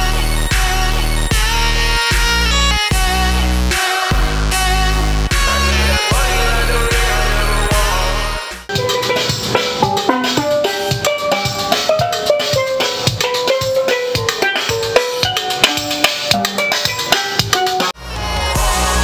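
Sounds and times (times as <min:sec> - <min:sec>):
steel pan melody: 0:08.7 - 0:18.0.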